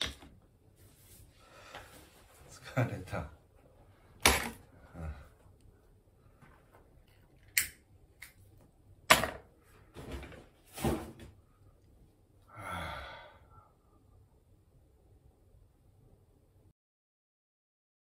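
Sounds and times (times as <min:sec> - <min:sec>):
long breathy exhale: 0:12.5 - 0:13.7.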